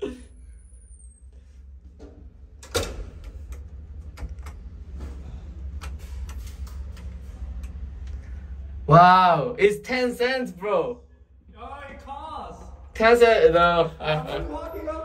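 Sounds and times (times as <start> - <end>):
low hum: 0.0 - 15.0
elevator door clunk: 1.9 - 8.0.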